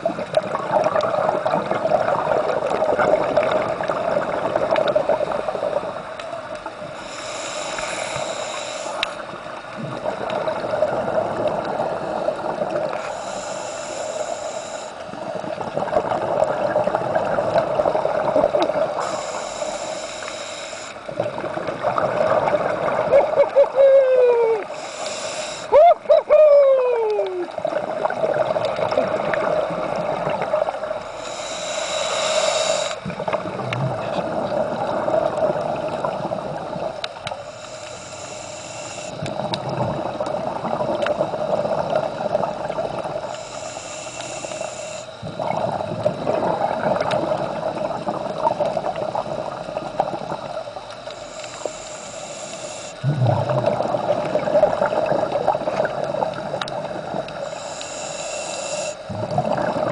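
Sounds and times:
exhaled bubbles burbling: 0:00.0 - 0:06.9, 0:09.2 - 0:13.1, 0:15.1 - 0:19.1, 0:21.0 - 0:24.7, 0:25.7 - 0:31.1, 0:33.0 - 0:37.2, 0:39.2 - 0:43.3, 0:45.2 - 0:51.1, 0:53.0 - 0:57.5, 0:59.0 - 0:59.9
hissing regulator inhale: 0:06.8 - 0:09.4, 0:12.9 - 0:15.3, 0:18.9 - 0:21.1, 0:24.6 - 0:25.8, 0:31.0 - 0:33.4, 0:37.2 - 0:39.5, 0:43.2 - 0:46.2, 0:50.8 - 0:53.8, 0:57.3 - 0:59.2.

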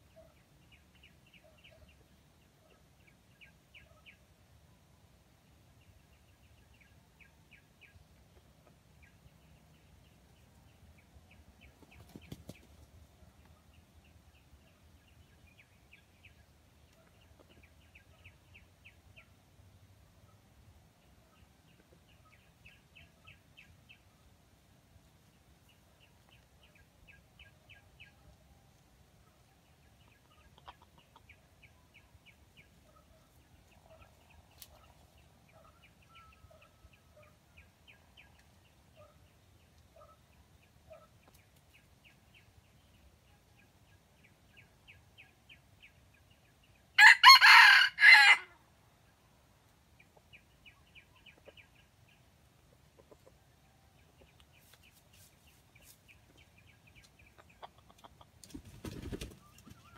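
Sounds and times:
soft clucking: 0:30.1 - 0:31.5, 0:52.7 - 0:53.5, 0:57.0 - 0:58.6
rooster crowing: 0:47.0 - 0:48.6.

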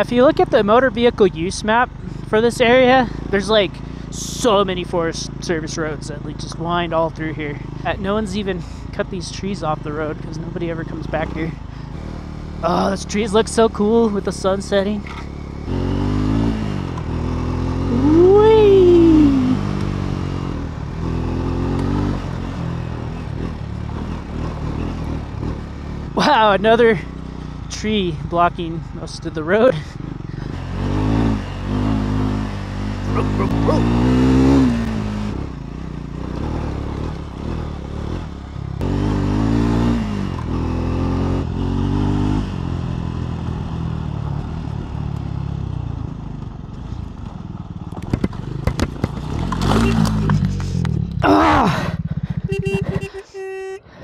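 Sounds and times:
motorcycle engine running: 0:00.0 - 0:54.0
rising and falling pitched sound: 0:17.9 - 0:19.8.

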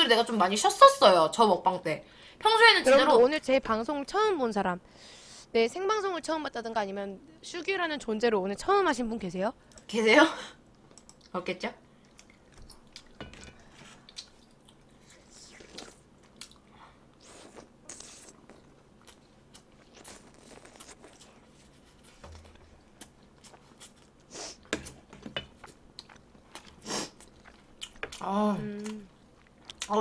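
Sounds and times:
soft chewing: 0:10.7 - 0:30.0
slurping from a spoon: 0:17.2 - 0:18.7
wet mouth clicks: 0:17.2 - 0:19.2.

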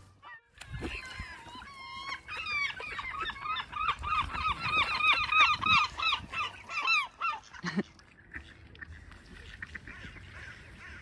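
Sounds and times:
gull yelping call: 0:00.2 - 0:07.6.

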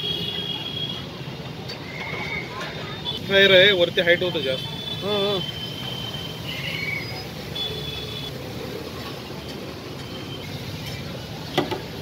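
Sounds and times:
oil sizzling in a deep fryer: 0:00.1 - 0:12.0.

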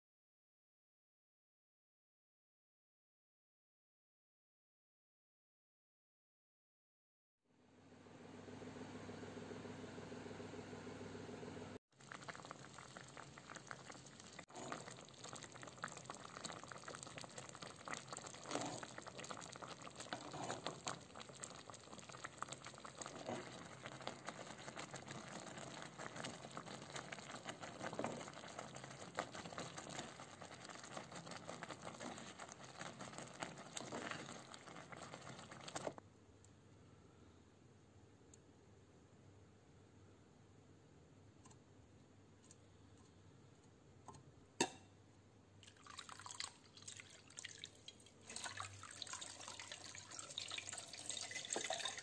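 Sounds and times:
boiling water bubbling and popping: 0:11.9 - 0:36.0, 0:45.6 - 0:52.0.

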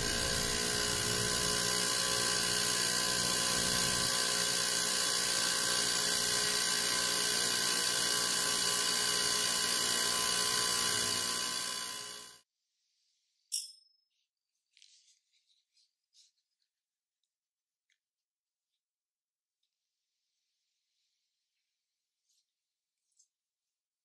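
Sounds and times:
ultrasonic cleaner humming and hissing: 0:00.0 - 0:12.4.

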